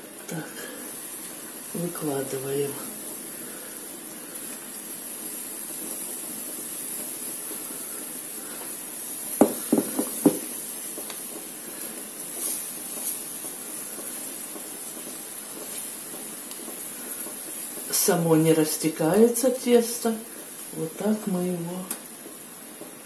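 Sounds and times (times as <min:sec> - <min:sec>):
batter sizzling in frying pan: 0:00.0 - 0:23.0
metal spoon knocking: 0:09.4 - 0:10.4.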